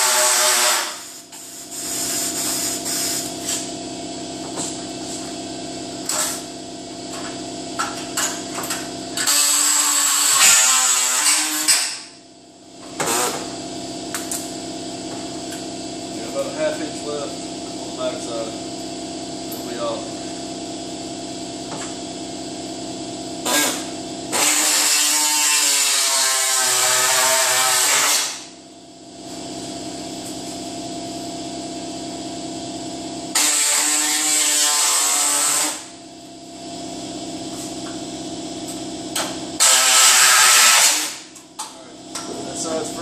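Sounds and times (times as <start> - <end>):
power tool cutting sheet steel: 0.0 - 3.3, 9.2 - 12.1, 13.0 - 13.5, 23.4 - 28.5, 33.3 - 36.0, 39.6 - 41.3
steady hum with fixed tones: 0.0 - 43.0.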